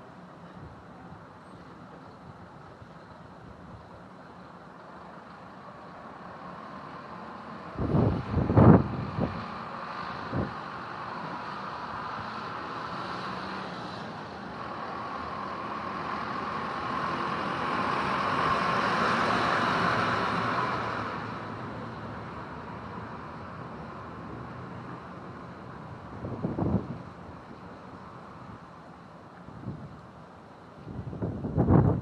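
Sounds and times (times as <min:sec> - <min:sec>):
outdoor background noise: 0:00.0 - 0:32.0
small truck passing: 0:05.0 - 0:29.8.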